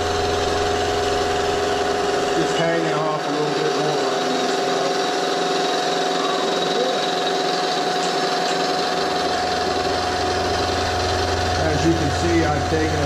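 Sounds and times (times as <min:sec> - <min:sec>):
milling machine cutting metal: 0:00.0 - 0:13.0
low hum: 0:09.2 - 0:13.0.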